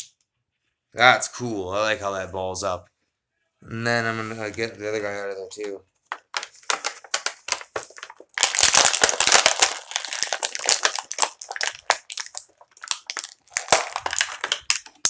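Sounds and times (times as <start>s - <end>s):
plastic packaging crinkling: 6.0s - 15.0s.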